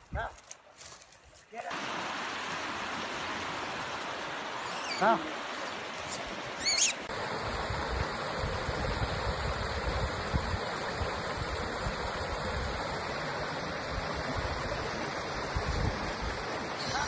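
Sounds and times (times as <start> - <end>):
stream running water: 0.0 - 17.0
wind buffeting microphone: 7.4 - 12.8, 13.9 - 16.6.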